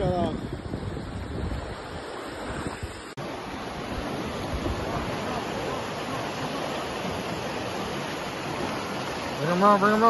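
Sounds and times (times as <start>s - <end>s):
wind on microphone: 0.0s - 3.2s, 3.8s - 5.8s
water churning and rushing: 0.0s - 10.0s.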